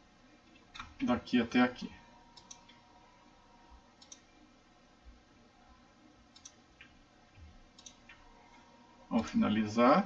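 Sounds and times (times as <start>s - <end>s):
computer mouse clicks: 2.3s - 2.9s, 4.0s - 4.3s, 6.3s - 8.3s.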